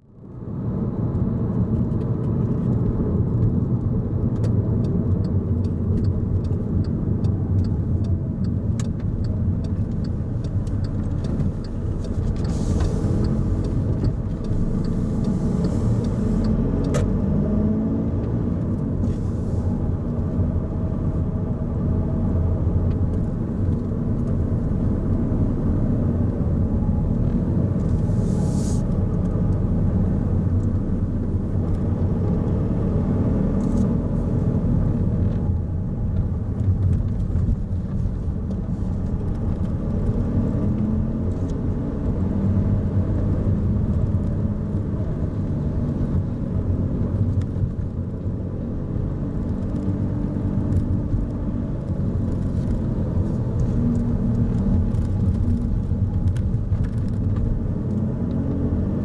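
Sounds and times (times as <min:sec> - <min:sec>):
car engine and tyre rumble: 0:00.0 - 0:59.0
light ticks: 0:01.8 - 0:17.1, 0:52.3 - 0:58.4
short hissing: 0:12.5 - 0:13.3, 0:28.1 - 0:28.9.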